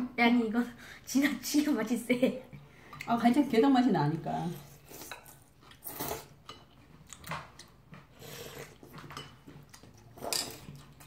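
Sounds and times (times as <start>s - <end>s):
noodles being slurped: 4.4s - 6.4s.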